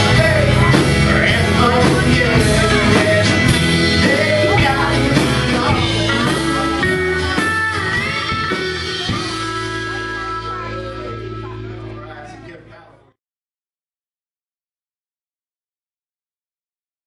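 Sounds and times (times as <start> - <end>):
pedal steel guitar: 0.0 - 12.5
live band playing: 0.0 - 12.8.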